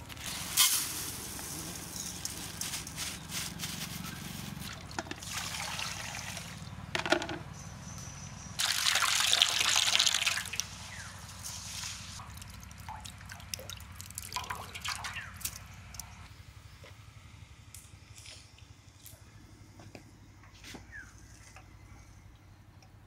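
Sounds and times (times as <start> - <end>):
water trickling and dripping: 12.2 - 16.1.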